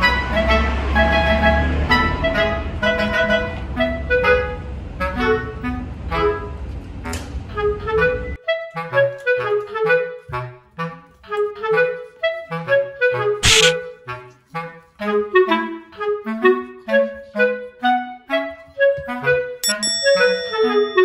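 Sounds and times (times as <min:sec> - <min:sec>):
bouncy woodwind music: 0:00.0 - 0:06.6, 0:07.5 - 0:21.0.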